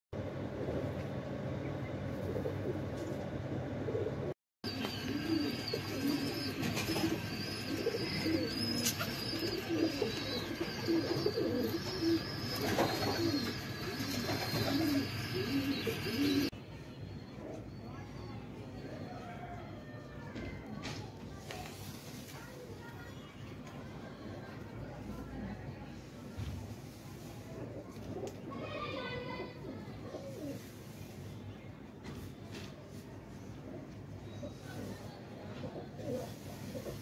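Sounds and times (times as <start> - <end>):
pigeons cooing: 2.1 - 16.5, 27.6 - 30.7, 35.6 - 37.0.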